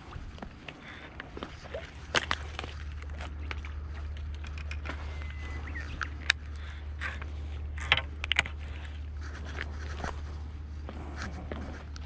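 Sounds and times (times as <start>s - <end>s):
fishing reel clicks and scrapes: 4.5s - 8.9s.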